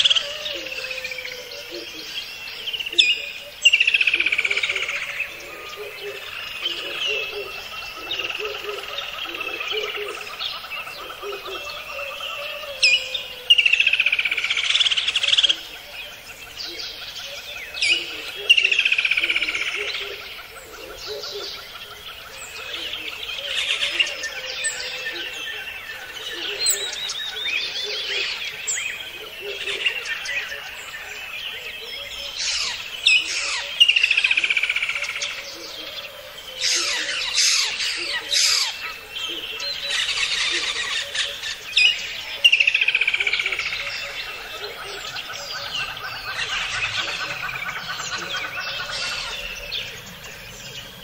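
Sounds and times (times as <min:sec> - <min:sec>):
birds chirping and calling: 0:00.0 - 0:51.0.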